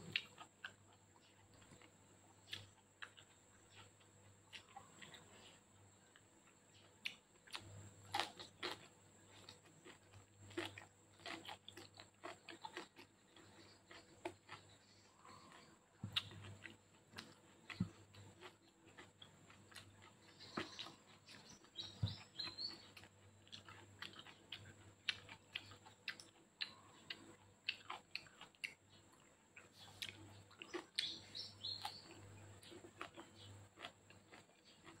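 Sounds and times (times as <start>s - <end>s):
wet chewing and lip-smacking: 0.0s - 35.0s
bird chirping: 19.7s - 24.7s, 28.9s - 33.9s.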